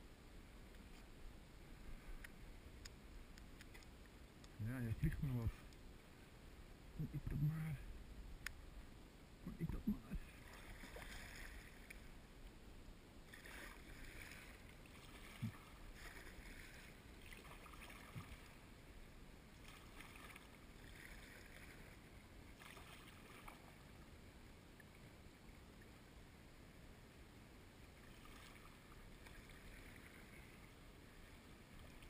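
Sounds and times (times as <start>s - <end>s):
paddle splashing in water: 10.3s - 12.0s, 13.3s - 18.6s, 19.6s - 23.8s, 28.0s - 30.6s.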